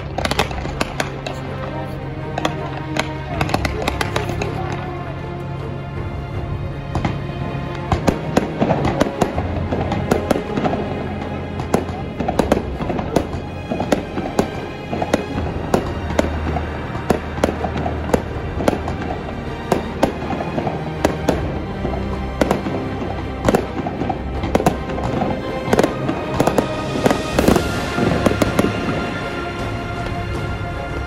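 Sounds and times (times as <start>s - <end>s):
firework bangs: 0.0s - 4.9s, 6.8s - 31.0s
background music: 0.0s - 31.0s
firework crackling hiss: 22.1s - 30.0s.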